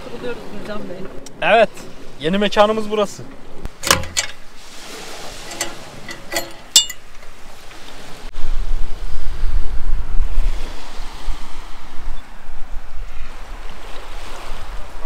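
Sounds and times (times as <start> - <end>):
wind buffeting microphone: 0.0 - 15.0
metal clicks of tow hitch: 3.7 - 4.5, 5.4 - 7.3.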